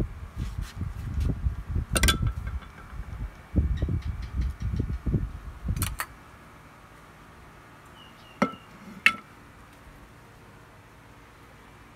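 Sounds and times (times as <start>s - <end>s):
rumbling handling noise: 0.0s - 6.1s, 8.4s - 9.4s.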